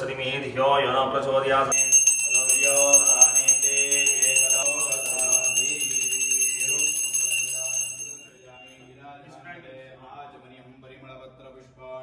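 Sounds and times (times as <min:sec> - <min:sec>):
hand bell ringing rapidly: 0:01.7 - 0:08.4
person chanting: 0:02.2 - 0:08.1.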